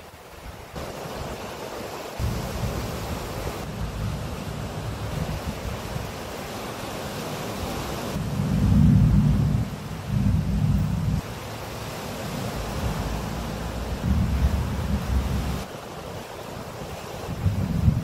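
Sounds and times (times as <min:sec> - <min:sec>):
surf: 0:00.0 - 0:18.0
wind: 0:00.0 - 0:18.0
thunder rumbling: 0:02.2 - 0:06.3, 0:08.1 - 0:15.7.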